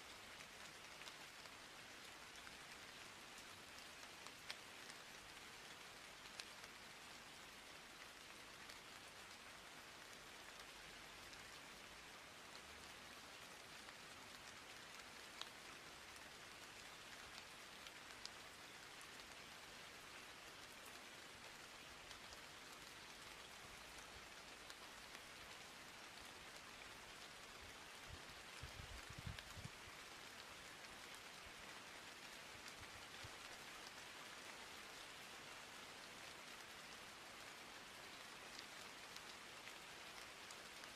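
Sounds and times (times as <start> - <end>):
faint steady hiss: 0.0 - 40.9.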